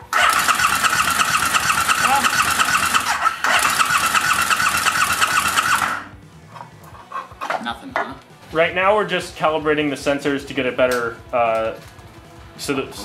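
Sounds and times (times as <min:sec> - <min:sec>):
electric starter cranking engine: 0:00.0 - 0:06.1.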